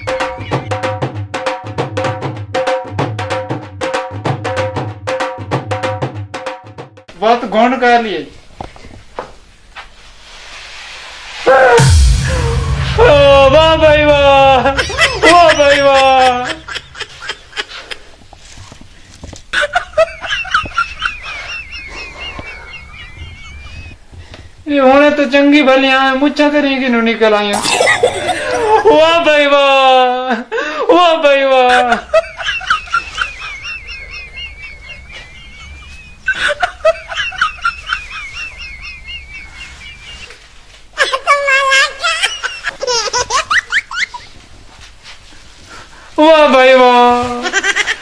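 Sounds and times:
high-pitched trilling giggle: 27.6 - 29.1.

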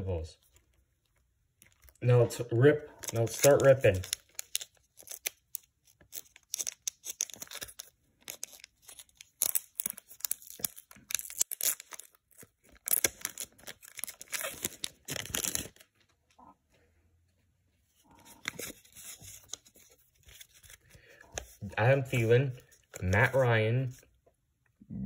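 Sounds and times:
plastic wrapping tearing and crinkling: 2.9 - 16.0, 18.2 - 24.0.

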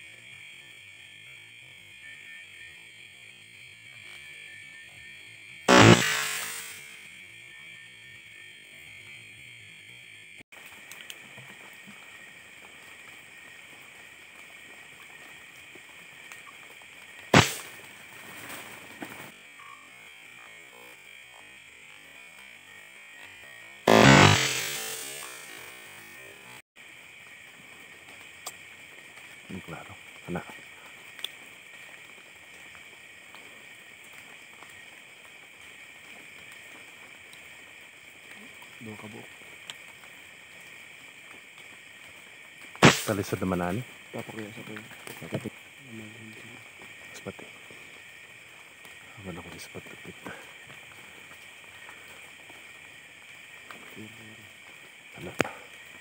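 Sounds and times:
night insects chirring: 0.0 - 56.0
rifle shot: 5.7 - 6.9, 17.4 - 17.7, 23.9 - 25.5, 42.8 - 43.2
faint ticks: 10.6 - 17.2, 28.0 - 37.6, 38.2 - 56.0.

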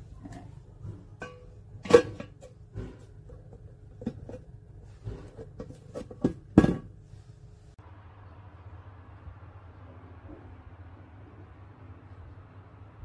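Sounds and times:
metal container and lid knocking: 0.2 - 4.4.

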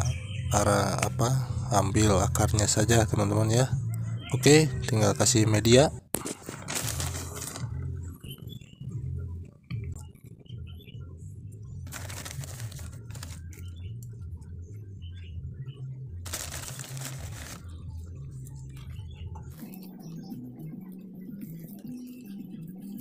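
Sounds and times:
soil crackling when pressed: 6.2 - 7.7, 11.8 - 13.8, 16.3 - 17.7
gritty soil pouring: 6.6 - 7.6, 11.9 - 13.6, 16.3 - 17.7.

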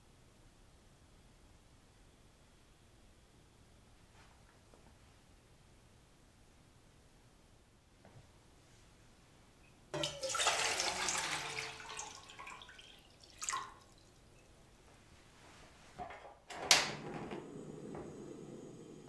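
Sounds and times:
water pouring into metal pot: 10.0 - 14.4
gas burner hissing: 16.5 - 19.0.

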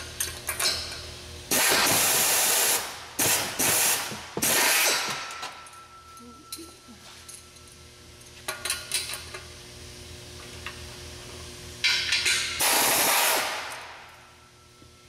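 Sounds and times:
pneumatic tool tightening bolts: 1.5 - 5.4, 12.1 - 13.8
metal clinks: 5.3 - 9.4.

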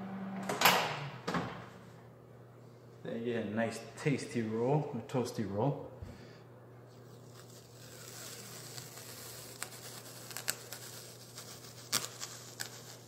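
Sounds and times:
masking tape peeling off roll: 7.0 - 13.0.

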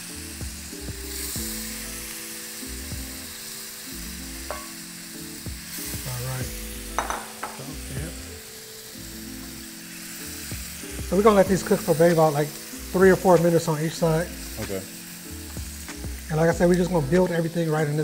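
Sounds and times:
shrimp sizzling in a skillet: 0.0 - 18.0
tongs tapping a pan: 4.4 - 4.9, 6.9 - 7.6, 11.0 - 11.8.

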